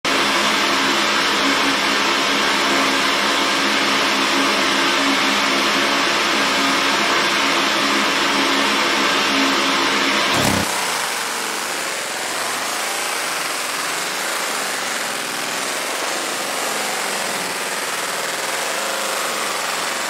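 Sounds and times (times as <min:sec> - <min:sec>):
low hum: 0:10.3 - 0:11.2
blower noise: 0:10.3 - 0:19.8.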